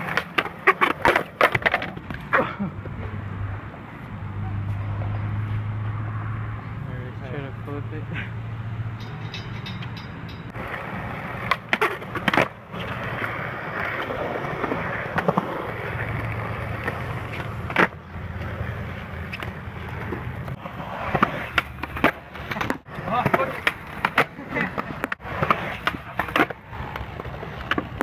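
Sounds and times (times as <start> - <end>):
skateboard clacking on ground: 0.0 - 2.4, 9.0 - 28.0
skateboard wheels rolling on concrete: 0.0 - 28.0.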